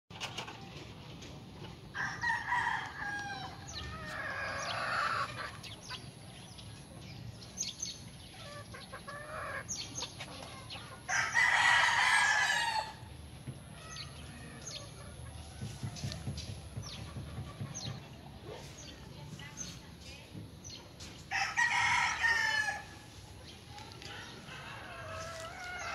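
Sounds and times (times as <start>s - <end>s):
rooster crowing: 2.0s - 3.6s, 21.3s - 22.9s.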